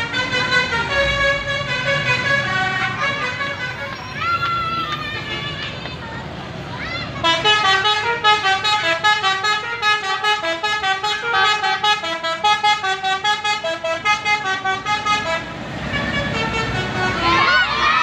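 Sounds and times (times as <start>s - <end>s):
bus driving past rumble: 0.0s - 18.0s
multi-tone air horn tune: 7.2s - 17.6s.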